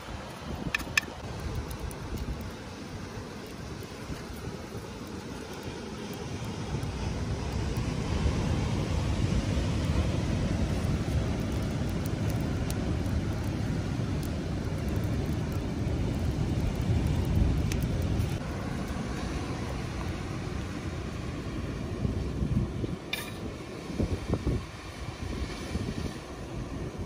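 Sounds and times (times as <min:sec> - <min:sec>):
wind buffeting microphone: 0:19.5 - 0:27.0.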